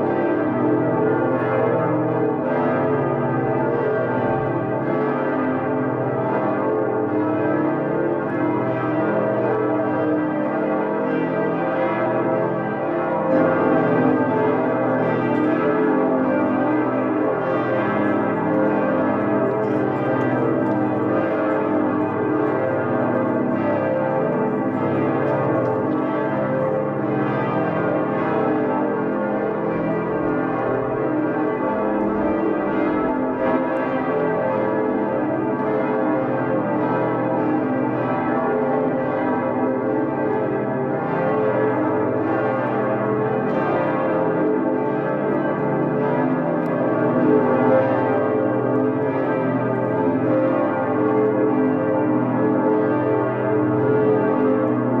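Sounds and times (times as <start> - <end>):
church bells pealing: 0.0 - 55.0.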